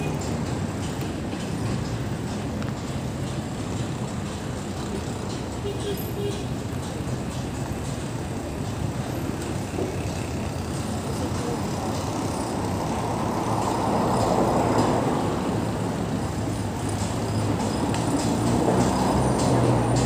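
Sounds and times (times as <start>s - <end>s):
passing cars rushing: 7.2s - 20.0s.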